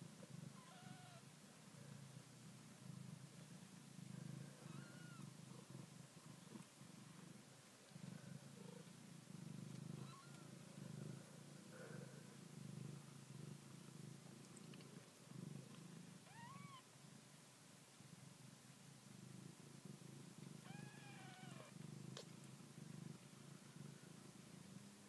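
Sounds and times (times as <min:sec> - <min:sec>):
cat purring: 0:00.0 - 0:17.3, 0:18.0 - 0:25.0
kittens mewing: 0:04.6 - 0:05.3, 0:20.6 - 0:21.7.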